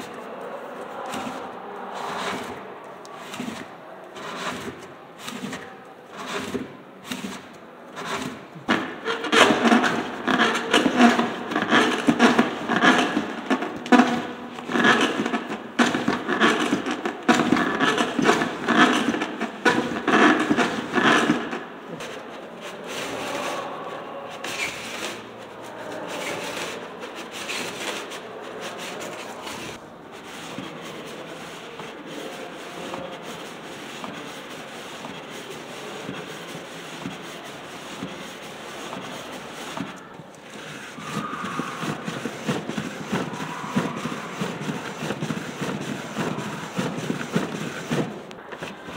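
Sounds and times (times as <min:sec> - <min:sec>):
cardboard cams scraping: 0:00.0 - 0:48.9.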